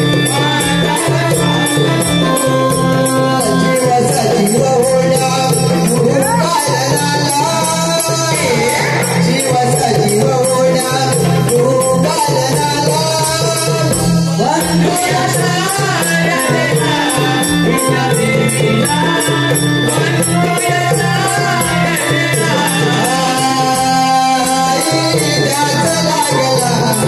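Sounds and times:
fast jingling percussion: 0.0s - 27.0s
person singing: 0.0s - 27.0s.

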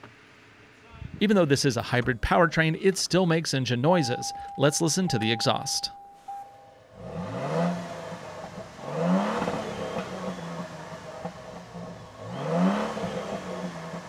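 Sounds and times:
car engine revving: 6.8s - 14.0s.

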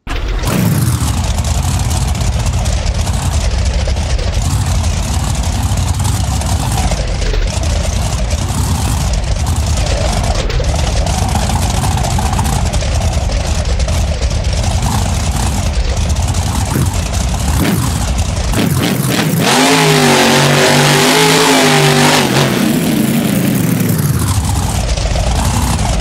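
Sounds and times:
truck engine revving: 0.0s - 26.0s.

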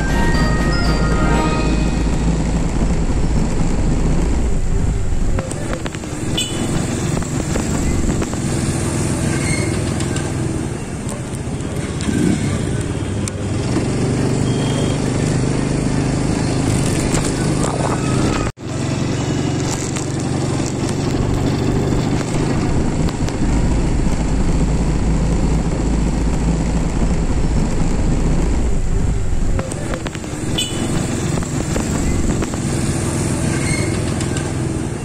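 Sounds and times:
wind rumble on microphone: 2.4s - 9.7s, 16.3s - 18.5s, 19.8s - 33.1s.

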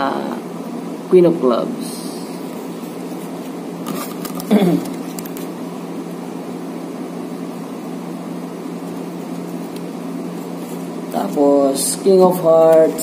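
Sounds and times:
room hum: 0.0s - 13.0s
playing cards handled: 2.8s - 5.5s.

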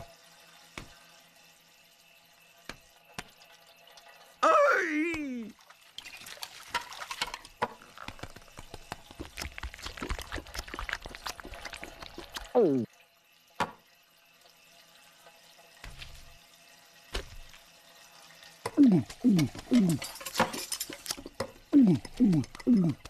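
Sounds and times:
wet clicking and dripping: 6.1s - 12.9s, 18.6s - 20.2s, 20.9s - 23.0s.

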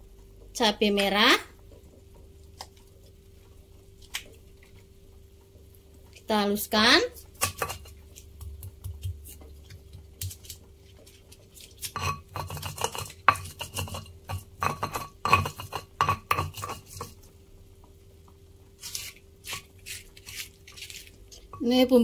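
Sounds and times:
stone pestle pounding in mortar: 7.4s - 9.4s, 11.9s - 17.2s.

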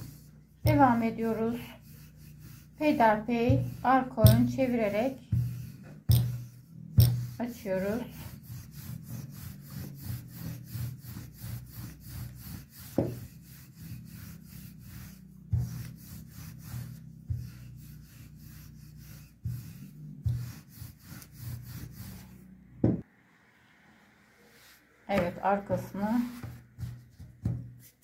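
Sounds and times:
rolling pin rubbing over dough: 0.0s - 23.0s, 24.5s - 28.0s
rolling pin knocking on countertop: 3.4s - 7.4s, 12.8s - 13.3s, 22.8s - 23.0s, 26.4s - 27.8s.

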